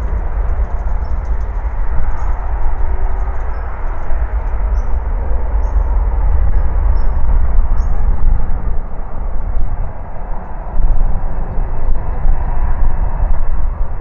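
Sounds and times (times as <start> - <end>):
jet engines rumbling: 0.0 - 14.0.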